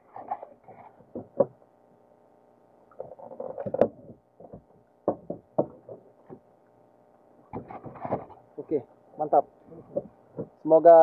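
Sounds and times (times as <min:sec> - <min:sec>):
knocks and clunks in a boat: 0:00.8 - 0:01.6, 0:03.0 - 0:06.4, 0:07.5 - 0:08.4.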